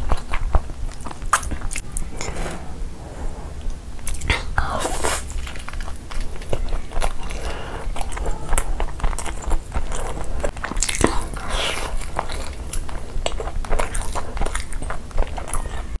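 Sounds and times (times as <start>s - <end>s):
biting and chewing food: 5.4s - 15.9s.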